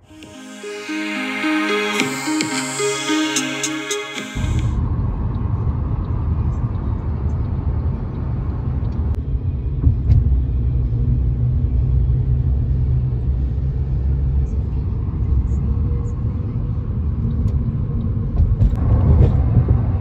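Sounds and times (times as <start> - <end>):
car road noise rumble: 4.8 - 20.0.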